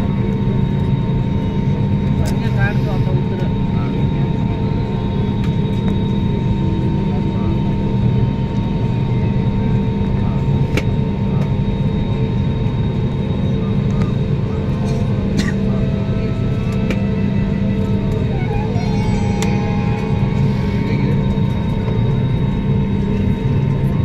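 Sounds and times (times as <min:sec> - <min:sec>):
jet engines rumbling: 0:00.0 - 0:24.0.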